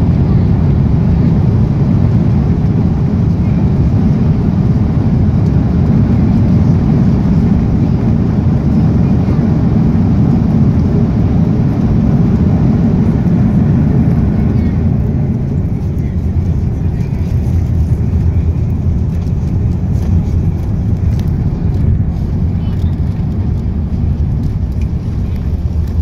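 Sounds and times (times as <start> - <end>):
aircraft cabin low rumble: 0.0 - 26.0.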